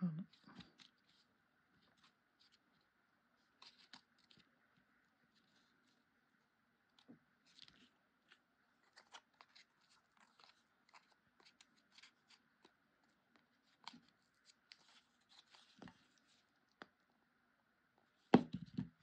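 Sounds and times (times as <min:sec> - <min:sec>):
paper rustling and clicks: 0:03.6 - 0:04.5.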